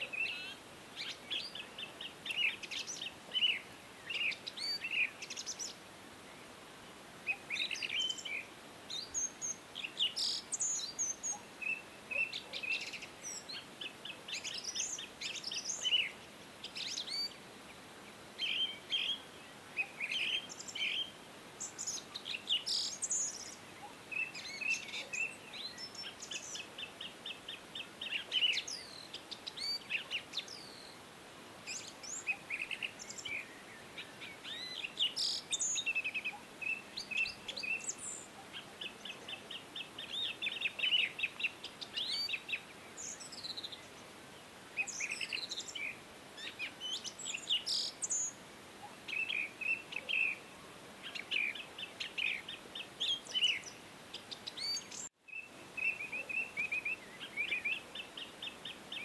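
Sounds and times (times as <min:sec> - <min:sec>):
small birds chirping and trilling: 0:00.0 - 0:06.6, 0:07.2 - 0:59.0.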